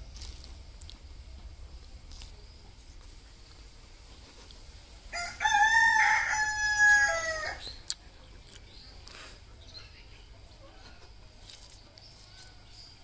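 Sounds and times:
rooster crowing: 0:05.1 - 0:07.8.

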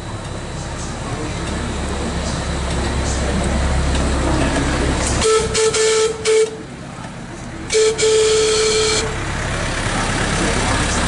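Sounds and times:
locomotive whistle blasts: 0:05.2 - 0:06.7, 0:07.7 - 0:09.2.

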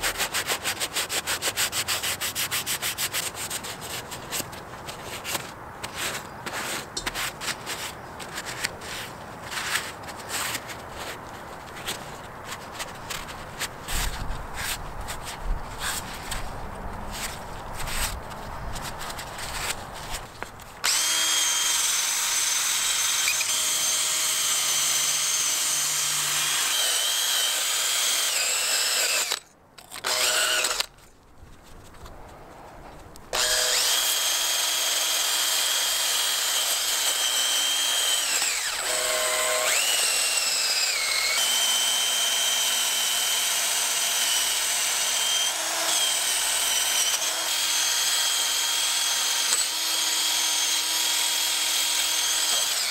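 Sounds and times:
drill with wire brush whining: 0:20.8 - 0:30.9, 0:33.3 - 0:52.9.

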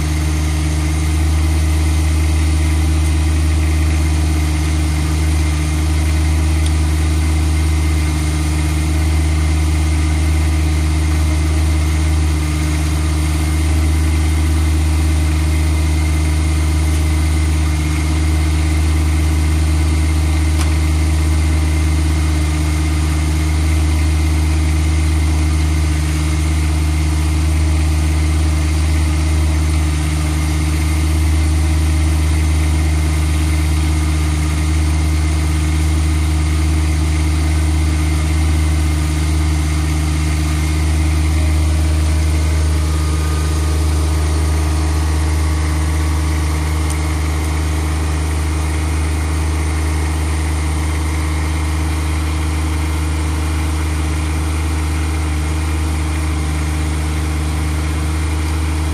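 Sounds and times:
tractor diesel engine running: 0:00.0 - 0:58.9.

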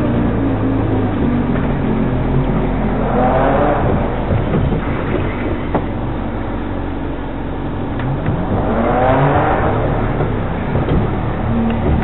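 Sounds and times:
off-road vehicle engine running: 0:00.0 - 0:12.0
vehicle knocking over rough ground: 0:03.8 - 0:06.2, 0:08.0 - 0:12.0.

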